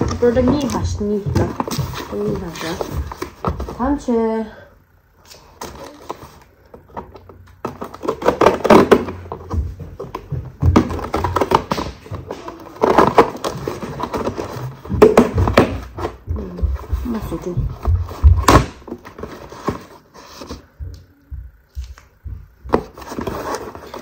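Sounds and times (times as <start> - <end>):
cardboard flaps handled: 6.8 - 20.9.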